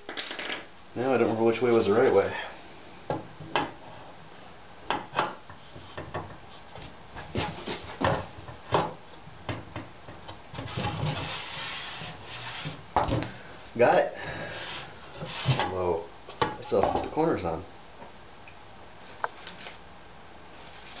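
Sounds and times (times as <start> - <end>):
plate rubbing scrape: 10.7 - 12.8, 14.5 - 15.7.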